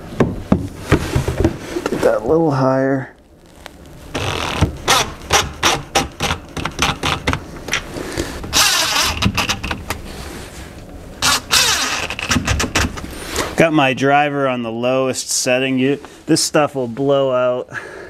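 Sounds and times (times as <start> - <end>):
cordless drill motor running: 8.5 - 9.6, 11.2 - 12.2.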